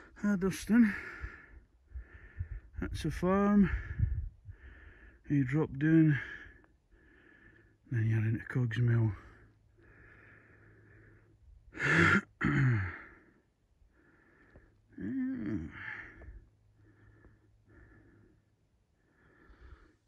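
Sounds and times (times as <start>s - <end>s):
man breathing: 0.9s - 2.8s, 3.6s - 5.3s, 6.2s - 7.9s, 9.2s - 20.0s
man sighing or murmuring: 11.8s - 13.4s, 14.9s - 16.4s.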